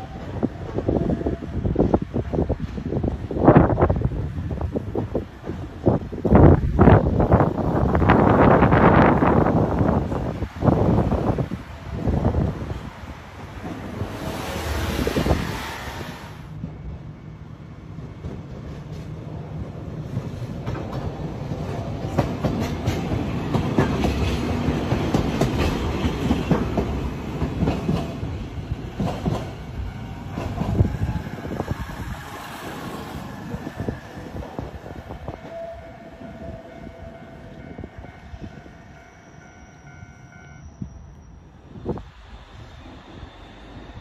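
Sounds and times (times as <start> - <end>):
tram wheels clicking over rail joints: 17.9 - 35.6.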